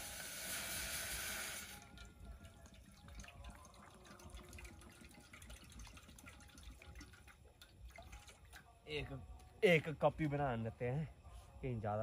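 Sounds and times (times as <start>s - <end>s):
water pouring: 0.0s - 8.7s
water dripping: 1.7s - 9.6s.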